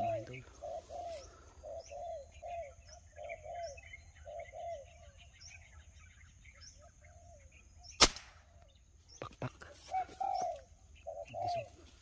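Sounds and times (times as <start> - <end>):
dove cooing: 0.0 - 5.2, 9.6 - 11.9
small birds chirping: 0.0 - 12.0.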